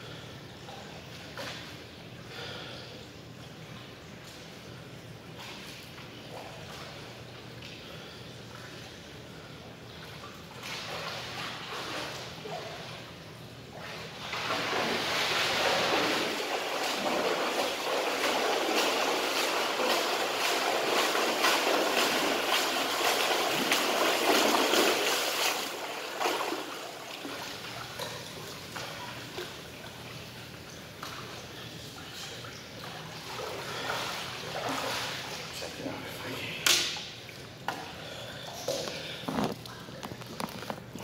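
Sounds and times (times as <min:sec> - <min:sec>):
water sloshing: 0:03.4 - 0:41.0
swimmer splashing: 0:09.9 - 0:41.0.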